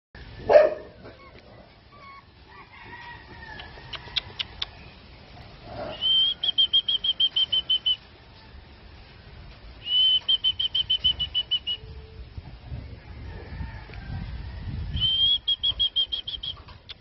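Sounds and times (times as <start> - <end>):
bird chirps: 5.9 - 8.0, 15.0 - 17.0.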